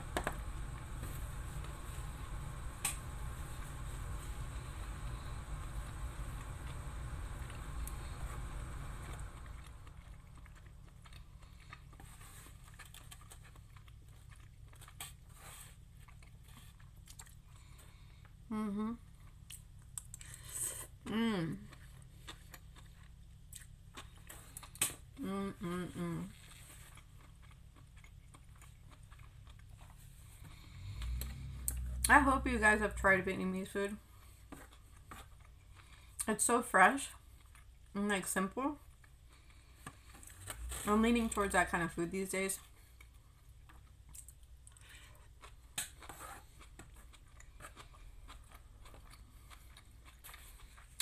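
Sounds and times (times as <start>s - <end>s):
person chewing with mouth clicks: 9.5s - 32.2s, 42.9s - 51.0s
person humming closed-mouth: 18.5s - 19.0s.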